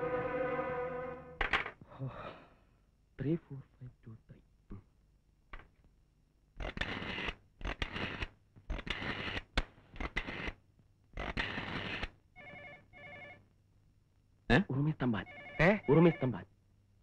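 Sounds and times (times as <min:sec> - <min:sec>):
telephone ringback tone: 0:12.4 - 0:13.4, 0:15.2 - 0:16.4.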